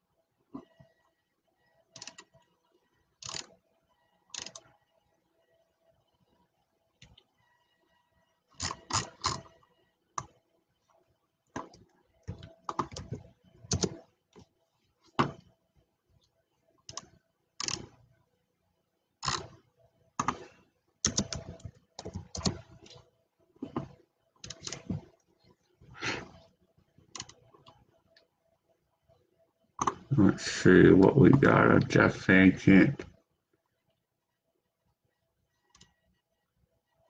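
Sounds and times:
typing on keyboard: 4.3s - 4.7s, 11.6s - 14.0s, 21.0s - 23.0s.

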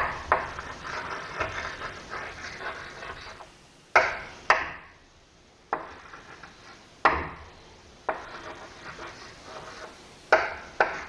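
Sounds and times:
chalk scraping on chalkboard: 0.0s - 3.5s, 5.7s - 6.9s, 8.1s - 11.0s
chalk tapping on chalkboard: 0.0s - 4.8s, 5.7s - 7.4s, 8.0s - 11.0s.

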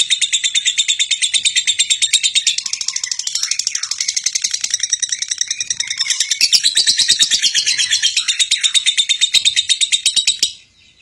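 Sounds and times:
lovebird chattering: 0.0s - 10.7s.

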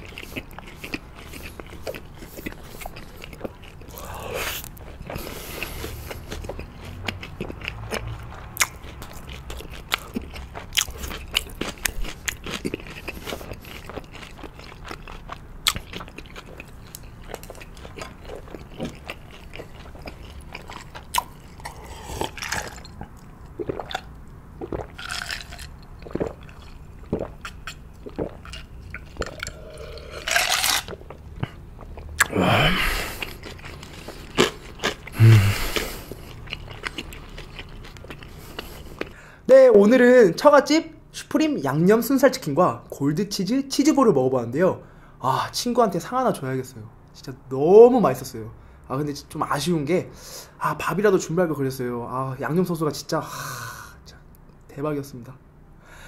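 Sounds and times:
wet chewing: 0.0s - 39.2s
crisp crunching: 24.7s - 27.2s, 28.1s - 31.2s.

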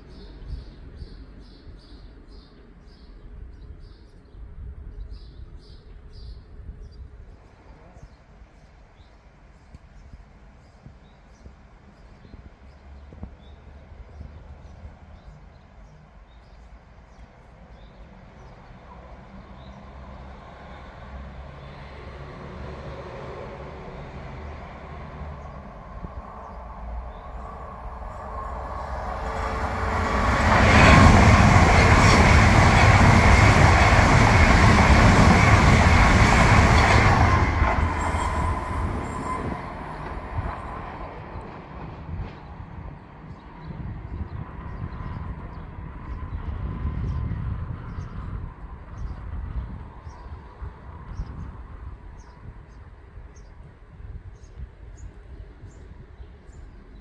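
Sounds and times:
high-speed train passing: 11.8s - 57.0s.

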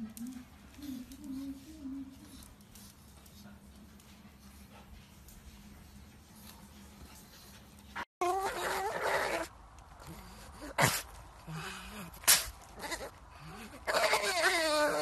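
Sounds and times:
dog whimpering: 8.2s - 9.5s, 12.8s - 15.0s
dog sneezing: 10.8s - 11.1s, 12.2s - 12.6s.

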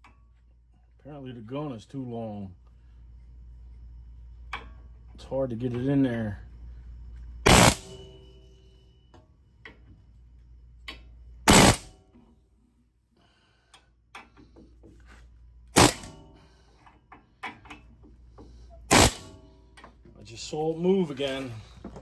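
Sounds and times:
air hammer bursts on metal: 7.5s - 8.0s, 11.5s - 11.9s, 15.7s - 16.5s, 18.8s - 19.5s.

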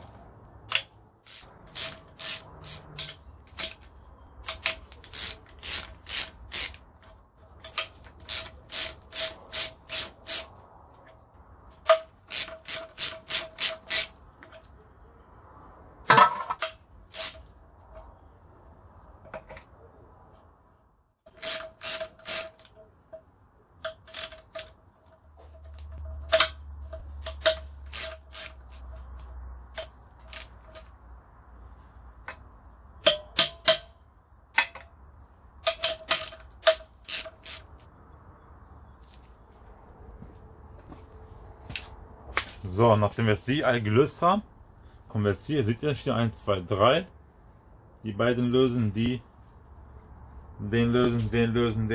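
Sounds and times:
socket ratchet clicking: 7.7s - 10.5s, 11.8s - 14.2s, 16.6s - 17.5s, 21.3s - 22.8s, 23.8s - 24.8s, 25.7s - 28.9s, 35.6s - 37.9s.

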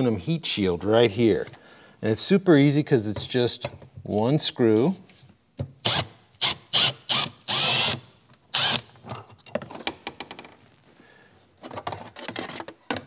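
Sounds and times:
cordless drill whirring: 5.8s - 8.9s.

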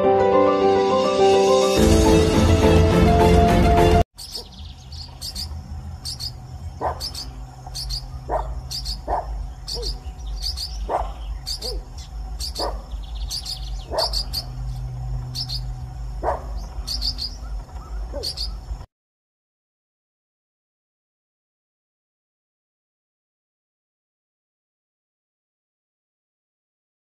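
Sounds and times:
parrots chirping: 4.2s - 18.8s.

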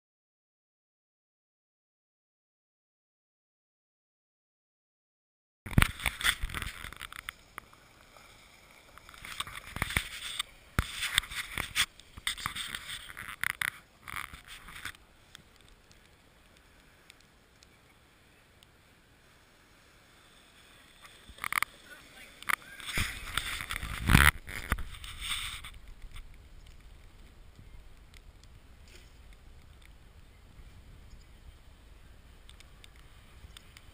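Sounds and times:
faint outdoor background: 5.7s - 33.9s.

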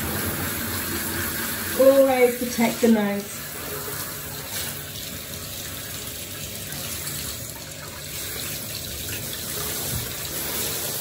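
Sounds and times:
shower head spraying water: 6.7s - 11.0s.

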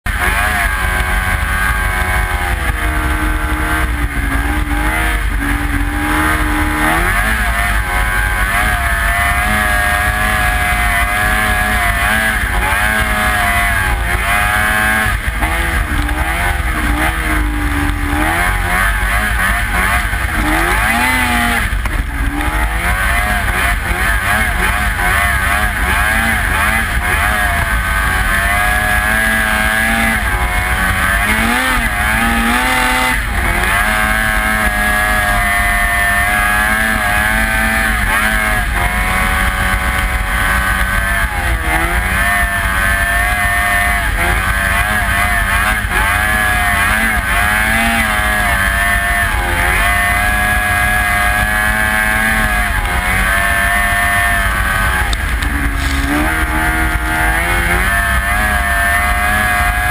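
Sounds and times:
snowmobile engine revving: 0.0s - 59.9s
track and wind rushing: 52.9s - 58.6s.

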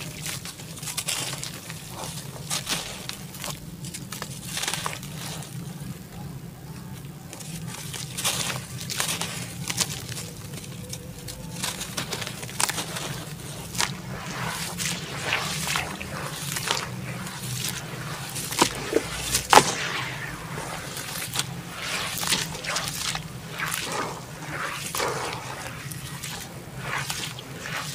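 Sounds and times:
hands sloshing muddy water: 11.6s - 27.9s
wet splashes and squishes: 11.6s - 27.9s.

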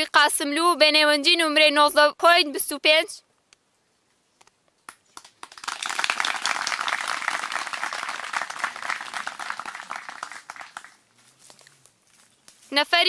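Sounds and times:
crowd applauding: 5.2s - 11.0s.

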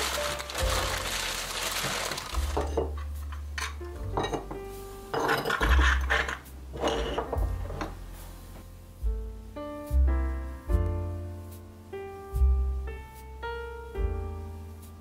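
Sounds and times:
newspaper rustling: 0.0s - 3.0s
background music with bass: 0.0s - 15.0s
cups clinking on wooden table: 2.6s - 7.9s.

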